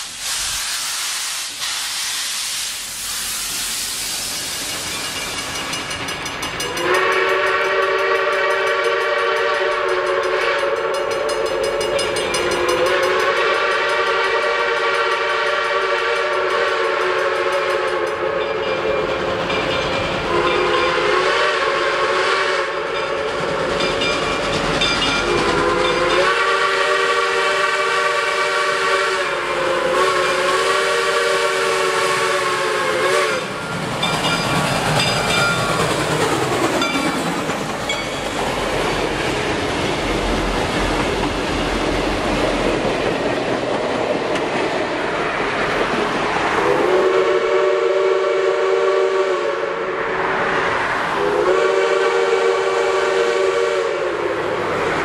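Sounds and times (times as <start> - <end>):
steady hiss: 0.0 - 5.9
steam locomotive chime whistle: 4.4 - 35.9, 46.6 - 50.1, 51.2 - 54.7.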